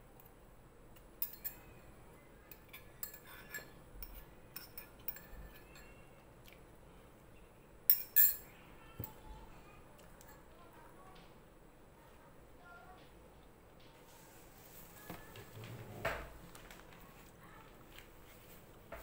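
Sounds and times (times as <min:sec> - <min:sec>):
spoon clinking on ceramic bowl: 0:01.2 - 0:01.8, 0:02.5 - 0:06.1, 0:07.9 - 0:09.2.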